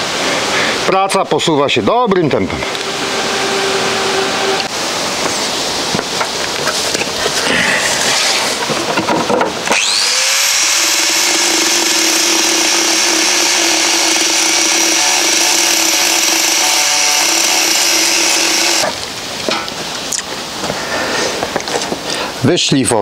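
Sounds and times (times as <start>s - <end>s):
angle grinder grinding sheet steel: 2.6s - 5.6s, 9.7s - 19.0s.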